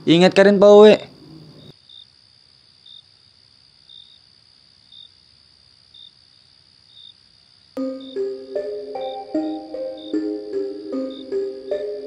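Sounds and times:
crickets chirping: 0.0s - 12.0s
music: 7.8s - 12.0s.

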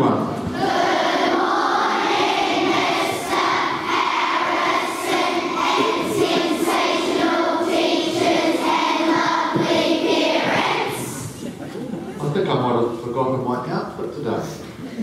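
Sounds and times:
children chanting in unison: 0.5s - 11.3s.

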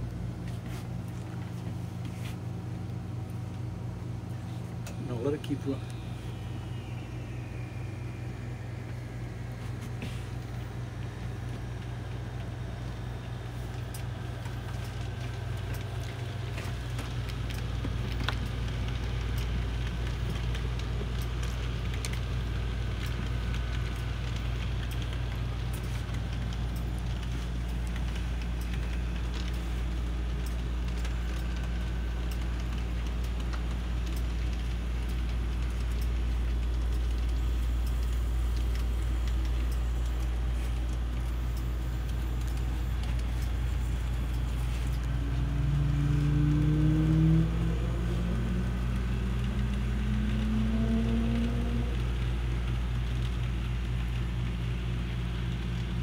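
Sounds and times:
model train engine drone: 4.2s - 56.0s
rising engine tone: 4.9s - 11.8s, 44.6s - 52.3s.

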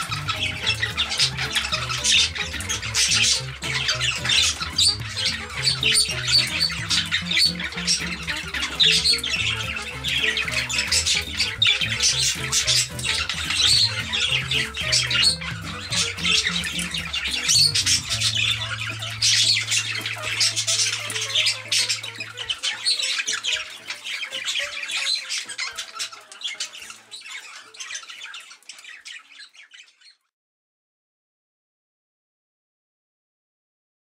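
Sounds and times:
held bass note: 0.0s - 22.4s
background music: 0.0s - 28.0s
parakeets squawking: 0.0s - 30.2s.

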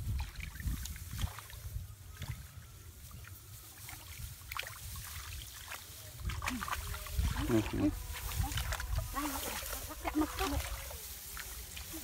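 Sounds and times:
hands splashing in muddy water: 3.8s - 12.0s.

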